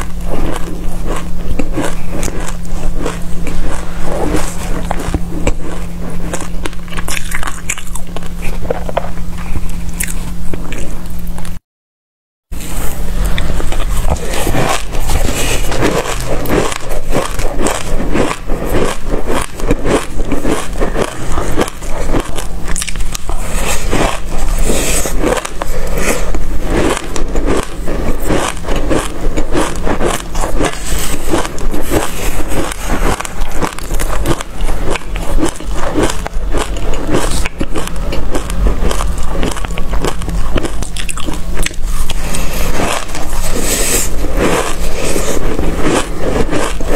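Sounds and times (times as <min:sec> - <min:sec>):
chewing crunchy seeds: 0:00.0 - 0:11.6, 0:12.6 - 0:46.9.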